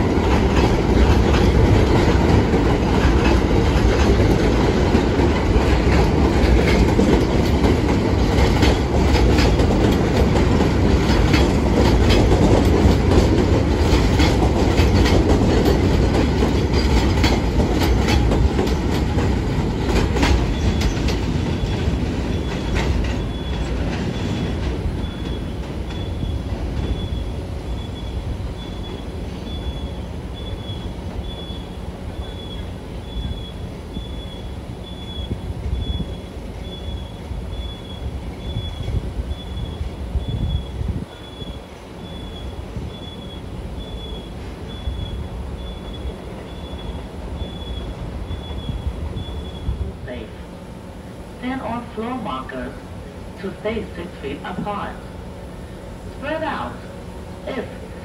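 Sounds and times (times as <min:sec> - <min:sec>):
wheels clattering over rail joints: 0:00.0 - 0:27.2
train rumbling over steel structure: 0:00.0 - 0:58.0
high pulsing squeal: 0:20.5 - 0:23.8, 0:25.0 - 0:49.8.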